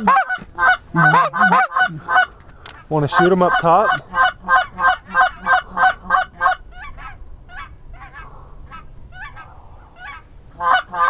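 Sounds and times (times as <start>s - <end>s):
goose honking: 0.0s - 11.0s.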